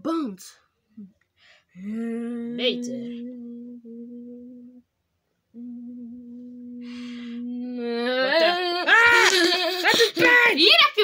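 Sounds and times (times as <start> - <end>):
child humming low note: 1.8 - 4.9, 5.5 - 8.9
child speaking: 2.5 - 3.1.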